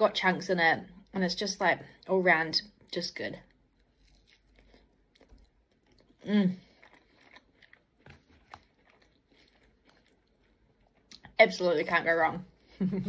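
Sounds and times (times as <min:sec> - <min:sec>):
person chewing: 0:03.4 - 0:11.4.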